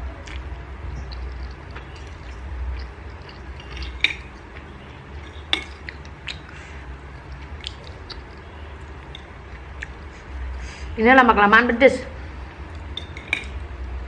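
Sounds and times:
low steady hum: 0.0s - 14.0s
cutlery clinking on a ceramic plate: 5.3s - 5.9s, 12.9s - 13.6s.

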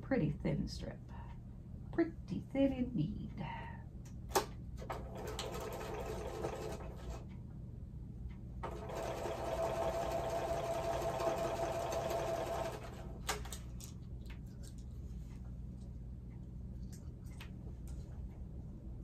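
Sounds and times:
sewing machine stitching: 4.8s - 7.2s, 8.6s - 13.4s.

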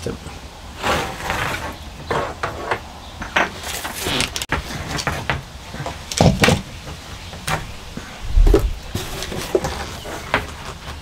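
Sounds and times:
heavier thumps: 7.5s - 9.2s.

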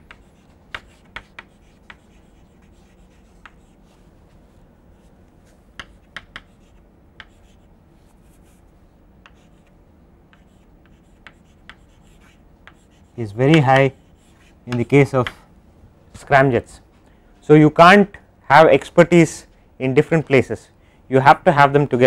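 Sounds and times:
chalk tapping and scratching: 0.0s - 15.4s
faint low room hum: 0.0s - 22.0s.

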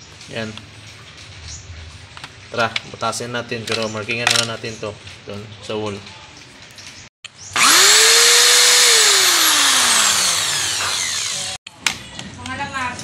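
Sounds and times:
electric drill boring into wall: 7.5s - 11.6s.

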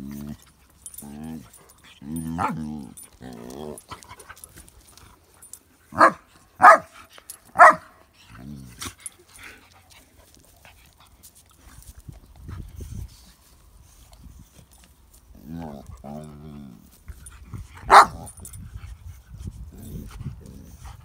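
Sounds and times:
quiet dog vocal sounds: 0.0s - 21.0s
dog barking: 6.0s - 7.0s, 7.6s - 7.9s, 17.9s - 18.2s.

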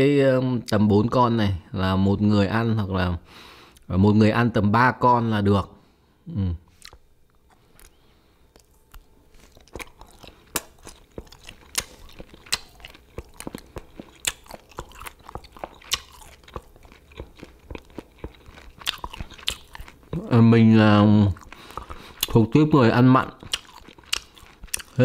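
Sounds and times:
person chewing crunchy food: 6.7s - 25.0s.

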